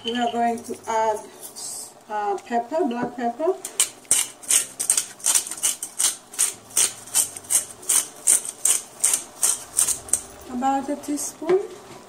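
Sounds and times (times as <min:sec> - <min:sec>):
pepper grinder rasping: 0:03.6 - 0:10.5.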